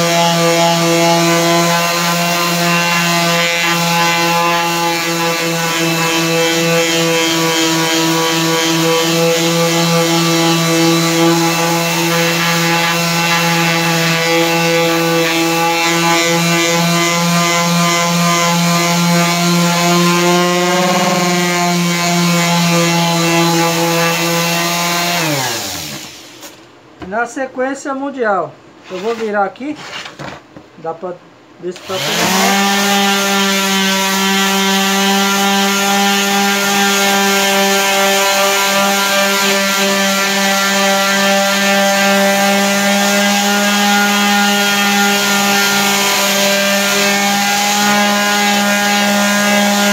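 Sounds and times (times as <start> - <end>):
orbital sander on wood: 0.0 - 26.4, 31.8 - 49.9
motor winding down: 20.6 - 21.7.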